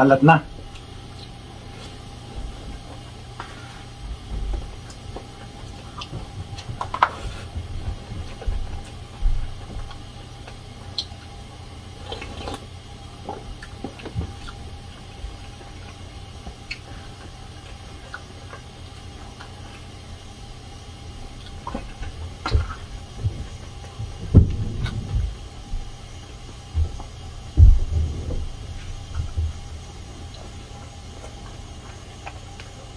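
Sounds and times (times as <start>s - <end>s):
chewing: 0.6s - 32.9s
loud knocks: 24.2s - 25.4s, 27.6s - 29.6s.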